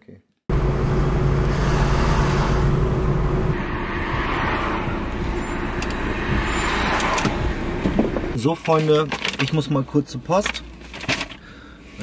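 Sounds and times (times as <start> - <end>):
car engine and road noise: 0.5 - 12.0.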